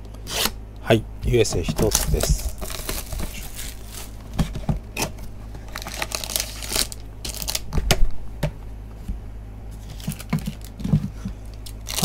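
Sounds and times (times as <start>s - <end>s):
plastic wrap tearing and crinkling: 1.8s - 4.2s, 5.0s - 7.8s, 9.8s - 10.8s, 11.6s - 12.0s.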